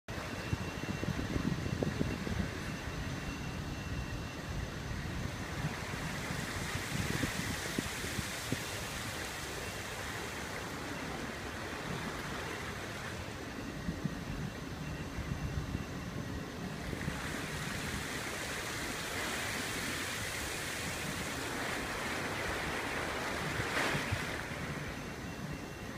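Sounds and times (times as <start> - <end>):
wind buffeting: 0.1 - 25.9
open sea water rushing: 5.0 - 13.8, 16.6 - 25.9.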